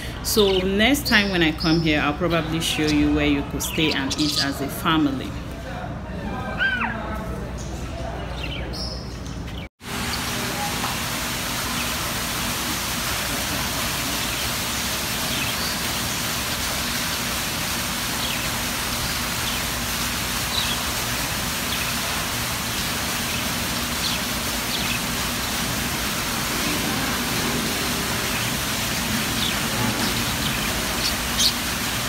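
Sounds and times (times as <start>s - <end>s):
fountain water splashing: 9.8s - 32.0s.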